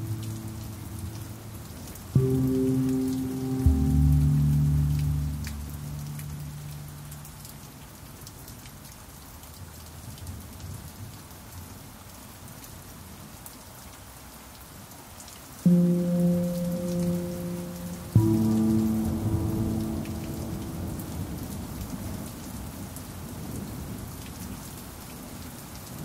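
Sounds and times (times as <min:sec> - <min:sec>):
steady rain falling: 0:00.0 - 0:26.0
low pan drum note: 0:02.2 - 0:06.5.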